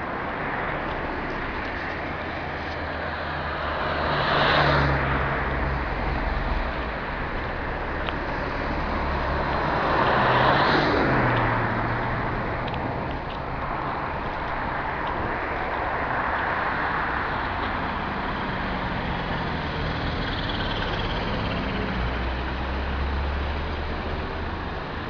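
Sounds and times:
car road and engine noise: 0.0 - 25.0
vehicles passing: 0.0 - 25.0.

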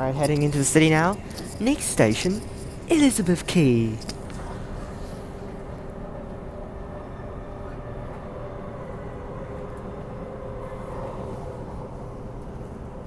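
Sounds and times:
train motor whine: 3.6 - 13.0.

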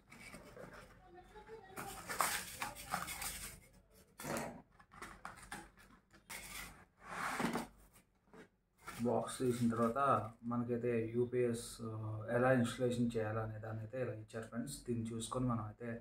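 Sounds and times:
cardboard box rustling and scraping: 5.4 - 7.9.

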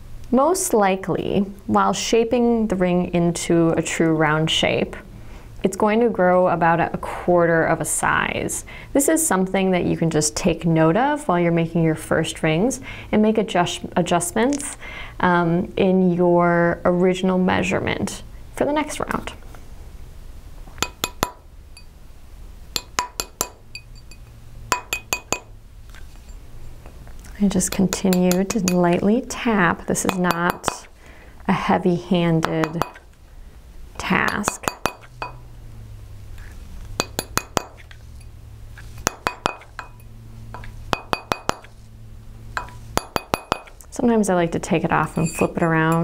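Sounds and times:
mallet tapping metal ring: 20.8 - 21.9, 22.8 - 25.5, 30.0 - 30.9, 32.4 - 33.0, 34.2 - 35.4, 37.0 - 38.3, 39.0 - 41.7, 42.6 - 43.8, 45.0 - 46.0.

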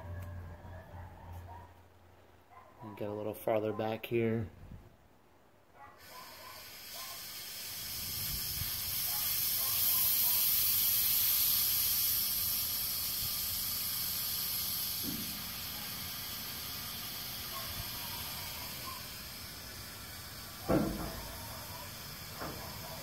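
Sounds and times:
steady high hiss: 5.9 - 23.0
sharp thump: 15.0 - 15.4, 20.6 - 21.3.

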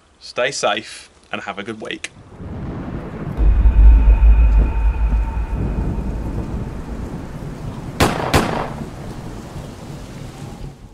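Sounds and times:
deep rumbling boom: 2.4 - 8.9
sharp hits: 3.3 - 8.6
faint high ringing tone: 3.4 - 8.0.

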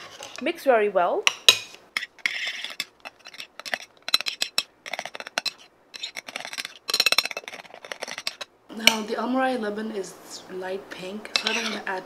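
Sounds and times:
metal spoons scraping plates: 0.0 - 0.4, 1.5 - 9.1, 11.3 - 12.0.

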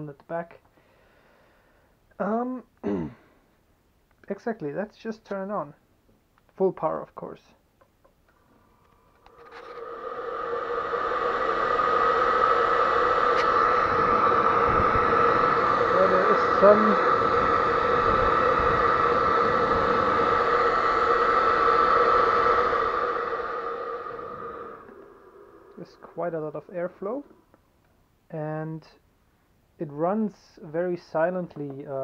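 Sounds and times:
blower air rush with whine: 8.4 - 27.6.

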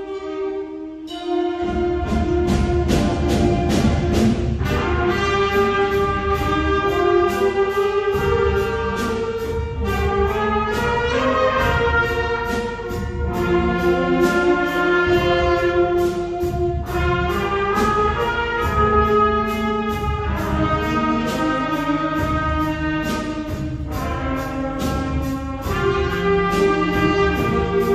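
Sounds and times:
brass and woodwinds melody: 0.0 - 27.9
percussion beat: 1.1 - 27.9.

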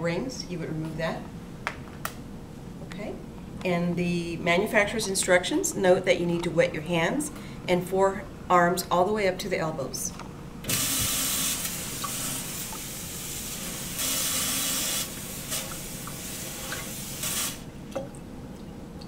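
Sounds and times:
faucet water splashing into sink: 14.0 - 18.2.

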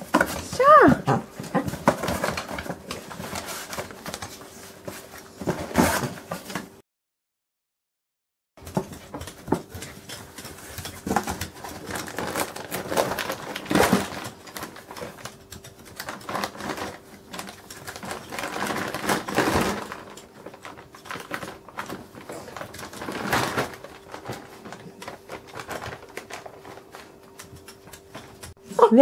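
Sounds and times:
plastic bag crinkling: 10.6 - 28.4.

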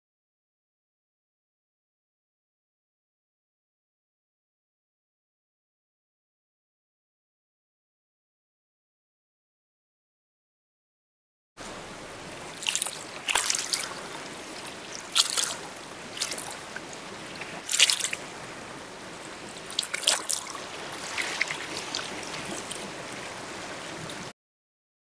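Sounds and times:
water rushing: 11.6 - 24.3
water splashing and gurgling: 11.6 - 24.3.

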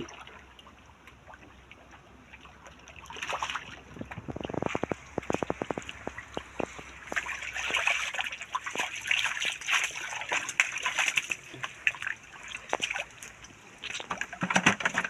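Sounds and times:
fish splashing in muddy water: 0.0 - 15.0
fish slapping: 3.2 - 15.0.

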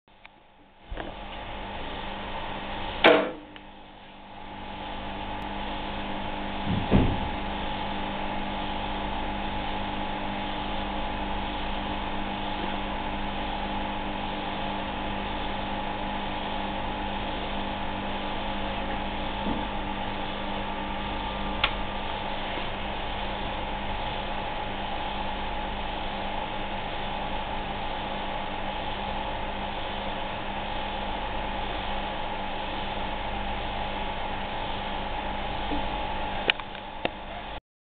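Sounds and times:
lab equipment humming and whirring: 0.1 - 37.6
dull knock: 6.7 - 7.4.

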